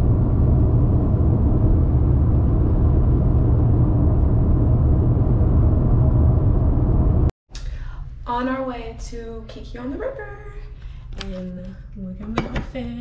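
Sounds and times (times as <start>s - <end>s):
car road and engine rumble: 0.0s - 7.3s.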